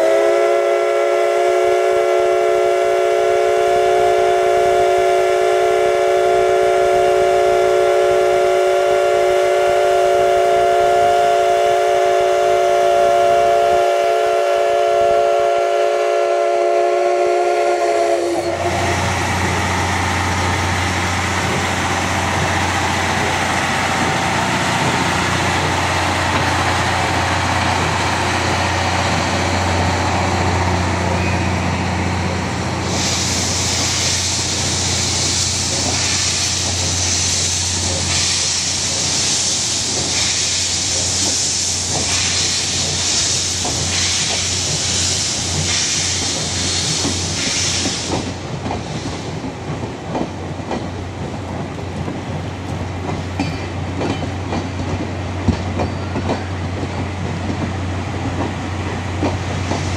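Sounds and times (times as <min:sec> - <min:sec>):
loud hiss of steam: 0:00.0 - 0:49.7, 0:50.3 - 0:59.9
train wheels clacking over rail joints: 0:17.6 - 0:59.9.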